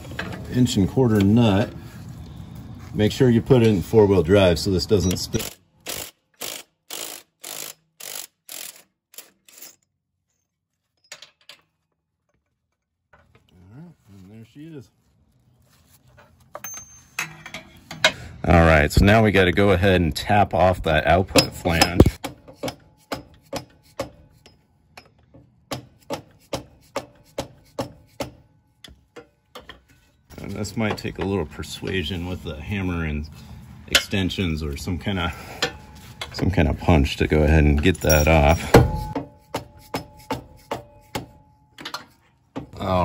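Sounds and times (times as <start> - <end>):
impact wrench hammering: 21.3 - 28.5, 38.1 - 42.7.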